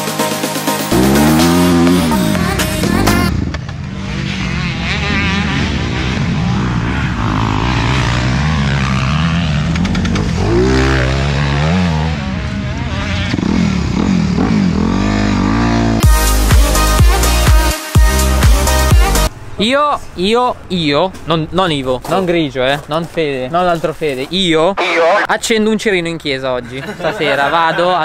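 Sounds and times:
dirt bike engine revving: 0.9 - 17.3.

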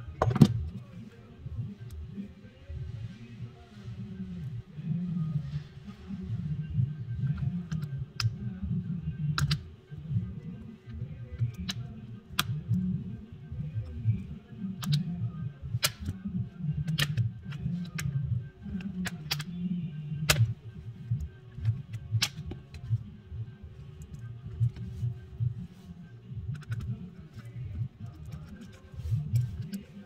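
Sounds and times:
background music: 0.0 - 30.0
plastic clips snapping: 9.4 - 9.6, 14.8 - 15.0, 15.8 - 16.2, 16.9 - 18.1, 18.8 - 19.6, 21.6 - 22.8.

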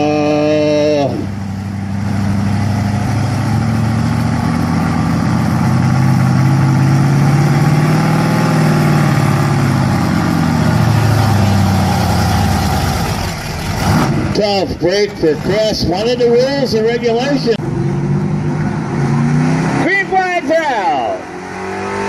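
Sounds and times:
pickup truck engine running: 0.4 - 17.6.

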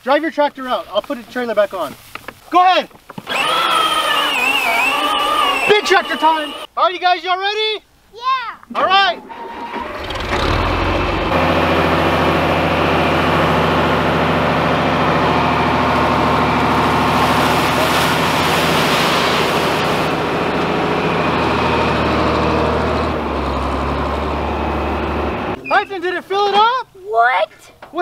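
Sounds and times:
tractor engine running: 3.2 - 6.7, 9.4 - 25.9
dirt and gravel pouring into water: 15.8 - 20.9.

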